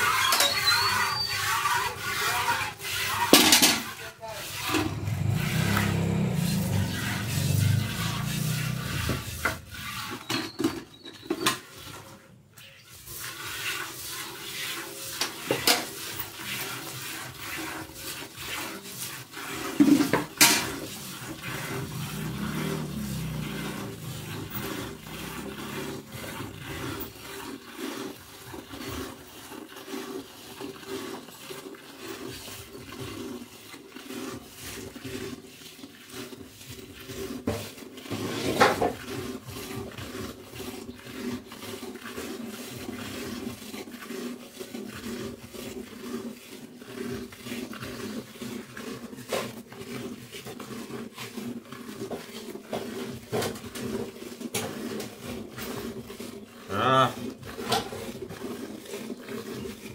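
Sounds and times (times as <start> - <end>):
milk squirting into steel bucket: 13.0 - 59.9.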